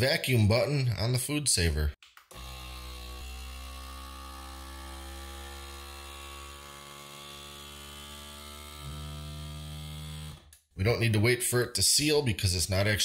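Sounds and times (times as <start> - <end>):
vacuum sealer pump humming: 2.3 - 10.4.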